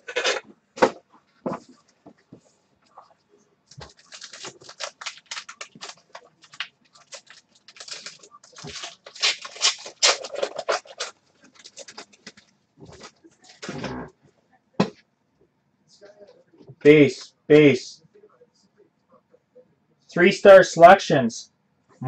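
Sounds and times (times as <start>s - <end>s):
foil wrapper crinkling and tearing: 3.7s - 12.5s.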